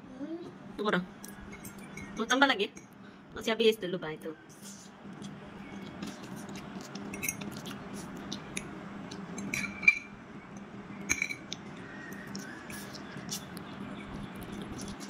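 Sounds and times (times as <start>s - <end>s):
faint low hum: 0.0s - 15.0s
fork clinking on ceramic plate: 1.5s - 2.2s, 7.1s - 7.6s, 9.4s - 10.1s.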